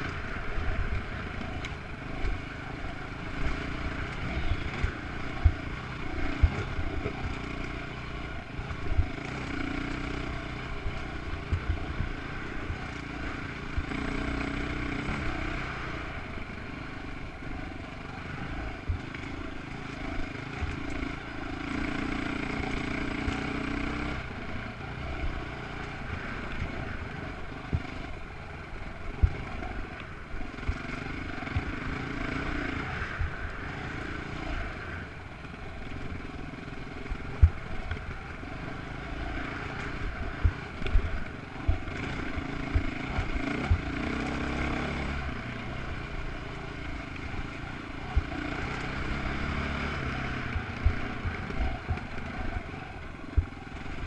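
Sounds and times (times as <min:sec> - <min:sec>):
dirt bike engine: 0:00.0 - 0:54.0.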